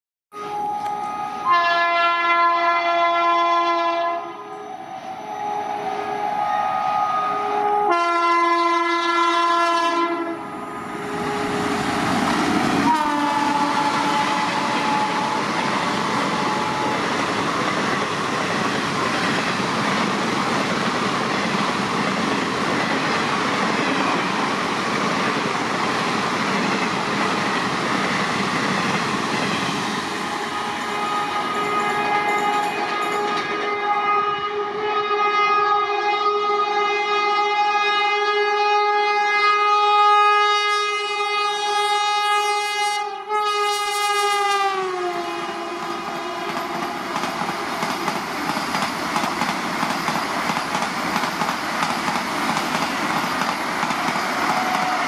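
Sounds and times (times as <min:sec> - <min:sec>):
train horn blasts: 0:00.3 - 0:12.0, 0:12.8 - 0:17.2, 0:30.3 - 0:47.2
trains passing at high speed: 0:00.4 - 0:55.0.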